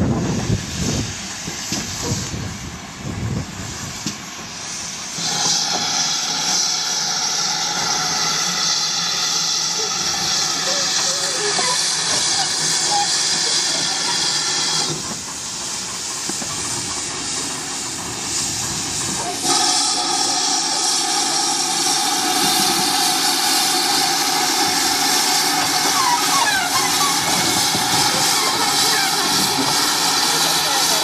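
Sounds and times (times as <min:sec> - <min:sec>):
steam locomotive hissing: 0:00.0 - 0:31.0.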